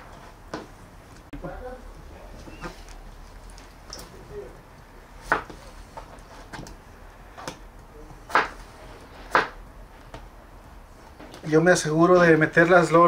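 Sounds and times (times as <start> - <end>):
knife chopping on cutting board: 5.2 - 5.7, 8.3 - 8.7, 9.3 - 9.6.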